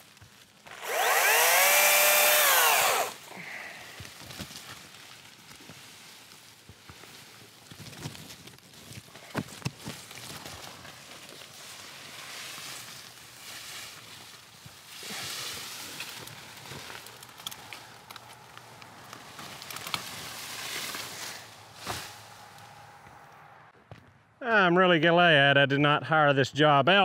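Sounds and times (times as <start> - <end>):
branches scraping across roof: 4.1 - 23.2.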